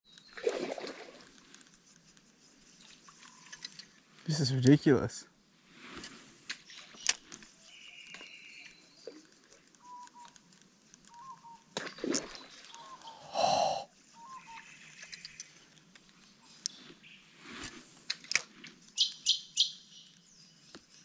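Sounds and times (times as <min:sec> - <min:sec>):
birds whistling calls: 0:09.8 - 0:10.4, 0:11.1 - 0:15.4, 0:19.0 - 0:20.5.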